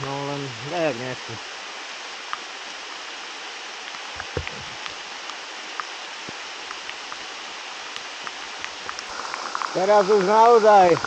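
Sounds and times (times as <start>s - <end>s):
heavy rain on leaves: 0.0s - 11.0s.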